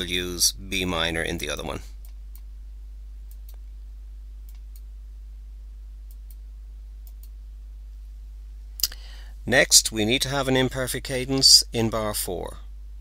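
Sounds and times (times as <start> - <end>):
low electrical hum: 0.0 - 13.0
computer mouse clicks: 3.3 - 3.6, 7.0 - 7.4.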